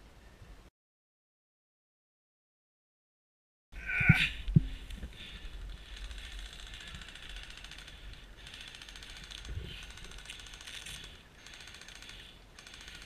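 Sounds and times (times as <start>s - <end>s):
airsoft guns firing full-auto: 6.1s - 13.0s.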